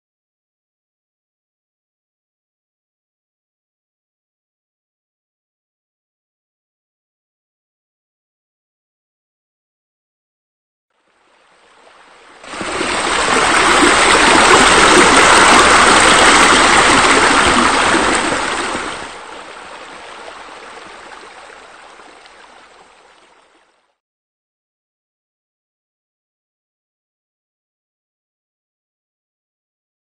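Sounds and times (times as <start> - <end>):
pool water jets splashing: 12.4 - 23.5.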